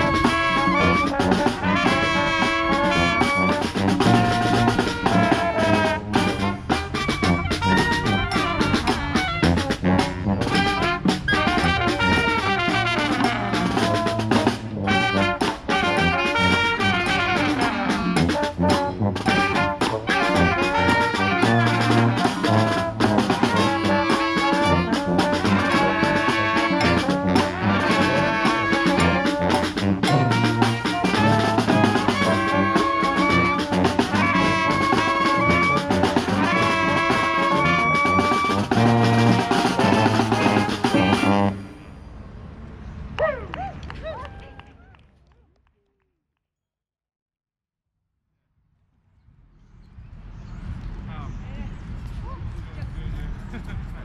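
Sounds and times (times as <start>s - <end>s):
sousaphone bass line: 0.0s - 15.2s, 16.0s - 41.6s
snare drum beat: 0.0s - 41.4s
trumpets and trombones: 0.0s - 42.1s.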